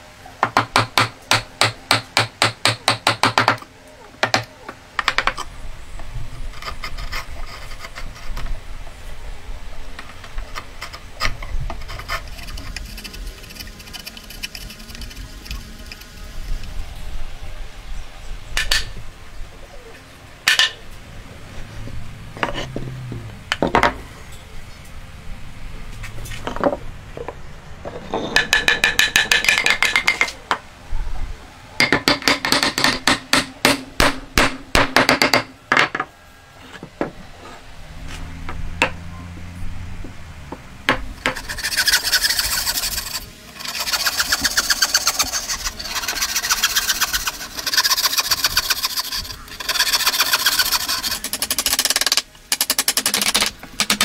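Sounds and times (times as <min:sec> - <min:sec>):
hand saw cutting wood: 0:10.6 - 0:16.0, 0:41.2 - 0:54.0.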